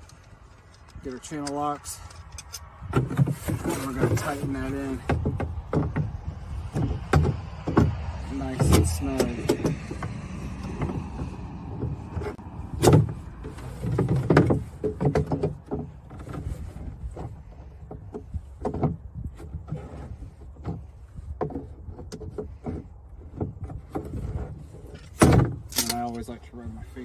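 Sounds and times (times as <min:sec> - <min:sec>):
clicks knocks and creaks: 0:00.0 - 0:26.4.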